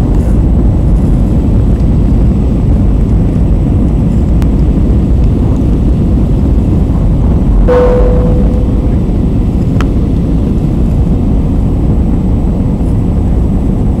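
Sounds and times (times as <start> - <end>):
jet airliner cabin rumble: 0.0 - 14.0.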